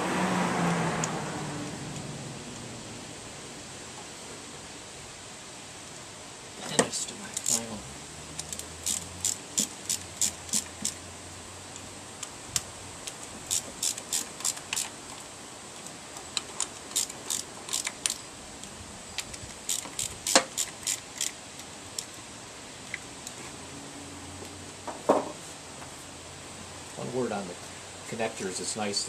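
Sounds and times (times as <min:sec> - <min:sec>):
hand ratchet clicking: 0:07.4 - 0:07.6, 0:08.4 - 0:11.0, 0:13.5 - 0:14.9, 0:16.6 - 0:18.2, 0:19.2 - 0:21.4.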